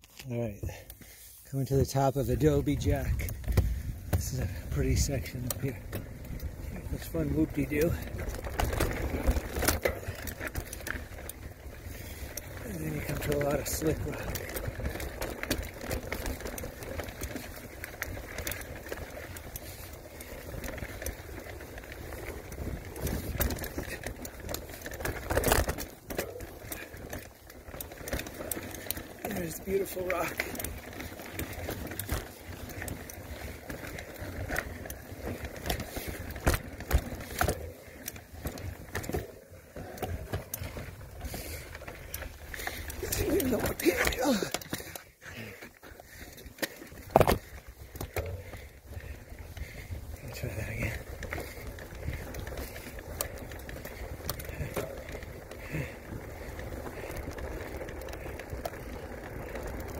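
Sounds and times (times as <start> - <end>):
bike rattling over bumps: 0.0 - 59.9
bike tyres crunching on dirt: 0.0 - 59.9.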